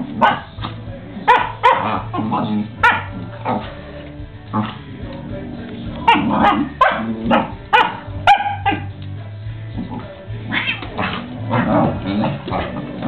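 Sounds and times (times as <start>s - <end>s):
dog barking and yipping: 0.2s - 0.6s, 1.3s - 3.6s, 6.0s - 8.9s.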